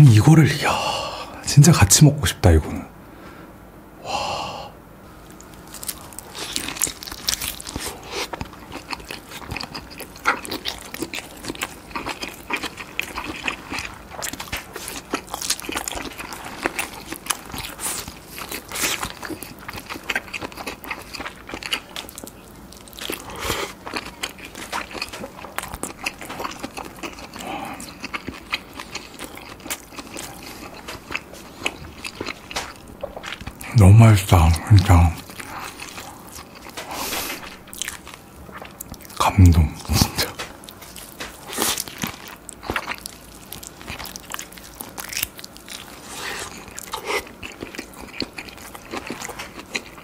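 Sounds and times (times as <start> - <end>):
biting and chewing mouth clicks: 5.3 - 33.7.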